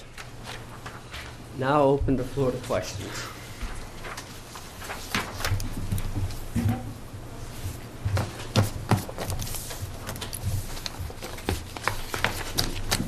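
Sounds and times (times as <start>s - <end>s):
paper rustling: 0.0s - 1.4s, 3.6s - 6.6s, 7.6s - 13.0s.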